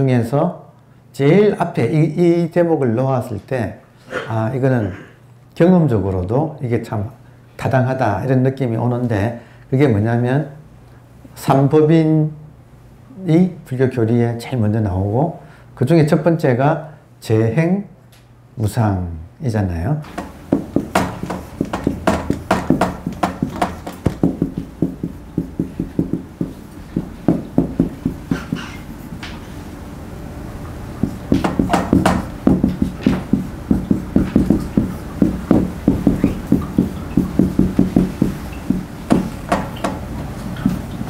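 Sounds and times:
marker squeaking on whiteboard: 0:28.0 - 0:28.9, 0:36.0 - 0:37.4.

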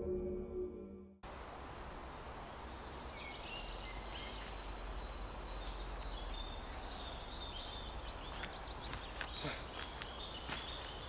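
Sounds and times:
outdoor background noise: 0:01.2 - 0:11.0
faint birdsong chirps and whistles: 0:02.4 - 0:11.0
footsteps in undergrowth: 0:03.9 - 0:11.0.

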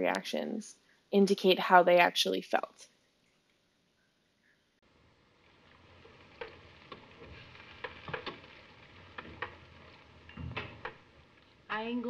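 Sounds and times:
film soundtrack hiss: 0:00.0 - 0:12.0.

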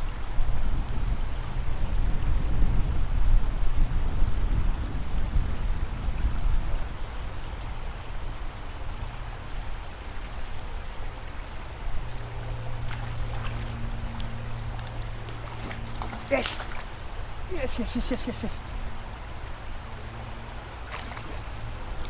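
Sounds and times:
low steady hum: 0:00.0 - 0:22.0
river water rushing: 0:05.5 - 0:22.0
faint ticks: 0:14.2 - 0:16.0.

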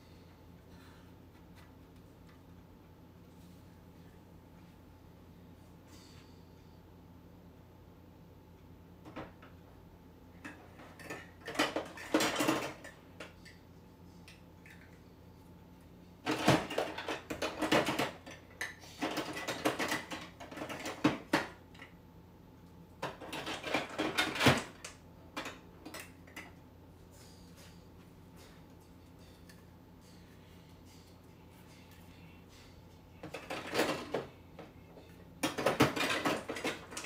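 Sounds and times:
plastic pieces clattering in a bin: 0:35.4 - 0:37.0.

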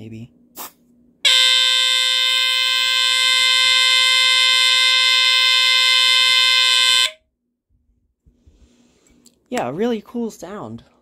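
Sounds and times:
smoke alarm squealer tone: 0:01.3 - 0:07.2.

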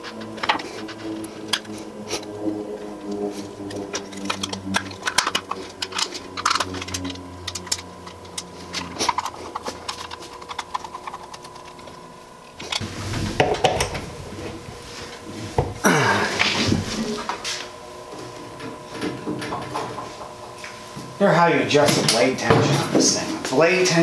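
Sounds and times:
screwdriver turning screws: 0:04.0 - 0:12.0.

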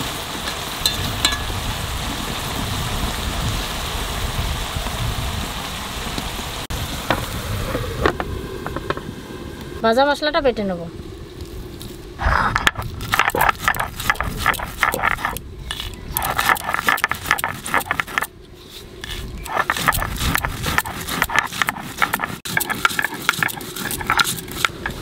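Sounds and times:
stone roller grinding on stone slab: 0:12.2 - 0:25.0.

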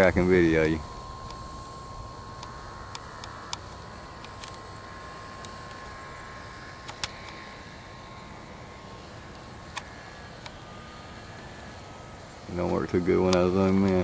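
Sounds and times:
faint steady high tone: 0:00.0 - 0:14.0
sharp clicks: 0:02.3 - 0:04.7, 0:06.8 - 0:07.4, 0:09.3 - 0:10.6, 0:12.6 - 0:14.0.

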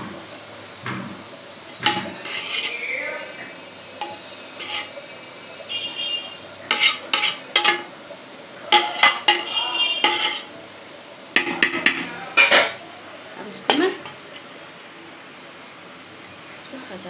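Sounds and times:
spoon clinking against metal pot: 0:01.8 - 0:02.8, 0:04.0 - 0:05.0, 0:06.7 - 0:07.9, 0:08.7 - 0:10.5.

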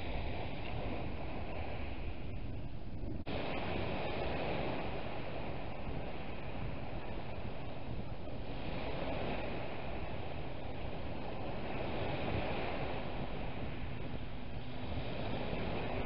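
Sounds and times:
wind rumbling on microphone: 0:00.0 - 0:16.0
waves breaking on shingle beach: 0:03.3 - 0:16.0.

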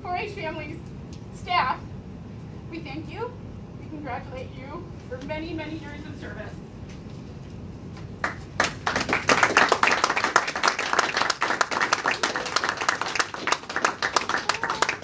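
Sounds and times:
people clapping: 0:08.0 - 0:15.0.

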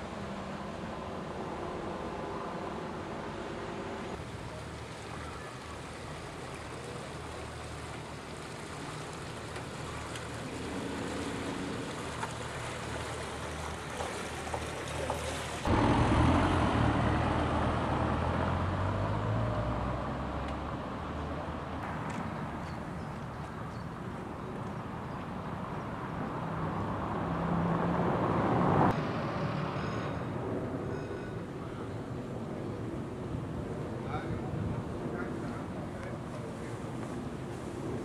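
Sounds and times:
water wash: 0:00.0 - 0:20.4
boat engine humming: 0:00.0 - 0:27.8.

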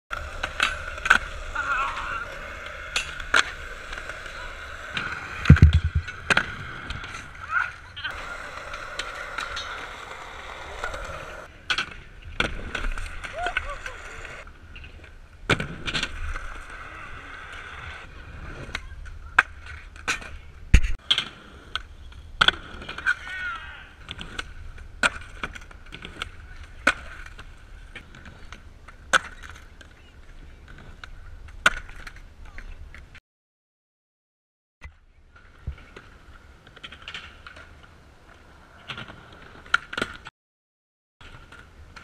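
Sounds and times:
skateboard wheels rolling: 0:00.1 - 0:33.2, 0:35.2 - 0:40.3, 0:41.2 - 0:42.0.

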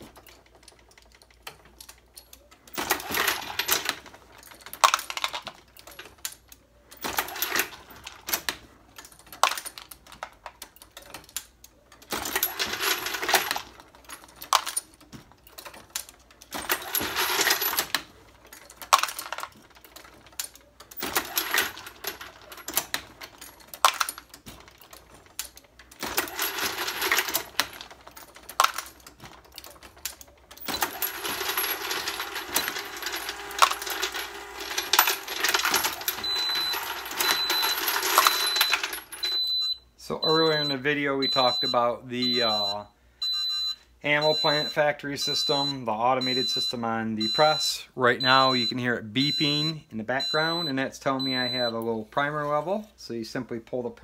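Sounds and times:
brass cases clinking and rattling: 0:00.0 - 0:39.7.

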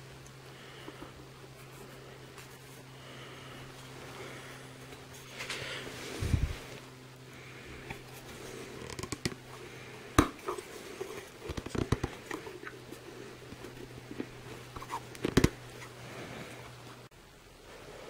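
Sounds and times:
rubber parts rubbing and rustling: 0:03.6 - 0:17.1.

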